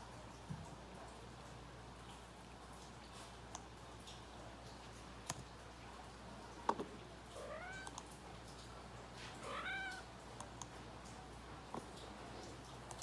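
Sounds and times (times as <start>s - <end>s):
cat meowing: 7.4s - 8.0s, 9.4s - 10.1s.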